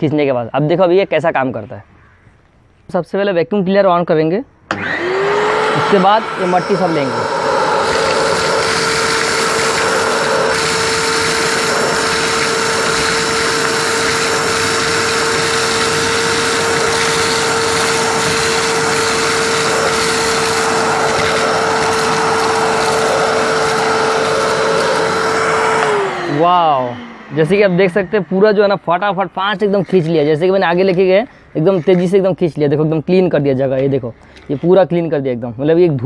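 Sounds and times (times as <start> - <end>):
vacuum cleaner whining: 4.7 - 32.1
vacuum sucking up gravel: 4.8 - 31.4.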